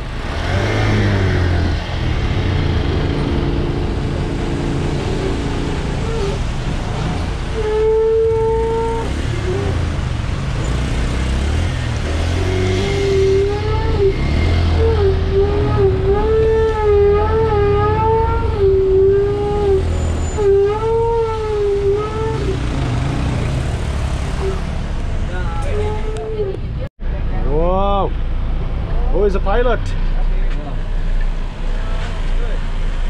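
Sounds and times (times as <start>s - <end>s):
bus engine rumbling: 0.0s - 33.0s.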